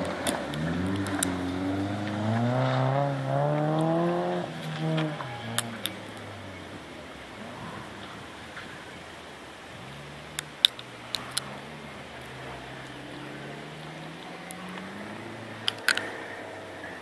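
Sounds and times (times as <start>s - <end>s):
distant car engine accelerating: 0.0s - 17.0s
sharp clicks: 0.1s - 1.4s, 10.3s - 11.5s, 15.6s - 16.2s.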